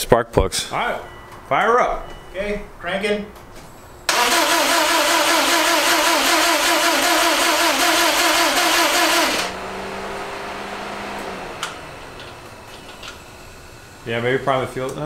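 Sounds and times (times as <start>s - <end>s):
car engine cranking: 4.1s - 13.5s.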